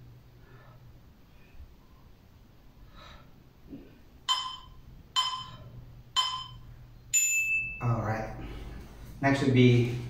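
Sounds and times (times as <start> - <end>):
higher timer tone: 4.3 - 8.0
short ringing timer tones: 4.3 - 8.0.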